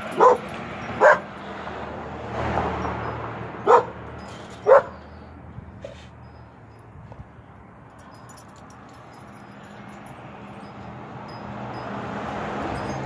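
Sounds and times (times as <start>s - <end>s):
dog barking: 0.1s - 1.3s, 3.6s - 4.0s, 4.6s - 5.0s.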